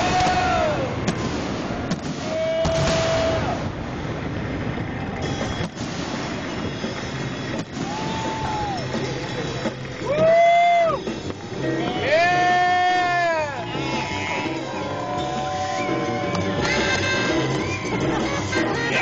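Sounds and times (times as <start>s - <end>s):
fireworks bangs: 0.0s - 11.6s
fireworks crackling hiss: 0.0s - 17.6s
horns honking: 5.0s - 19.0s.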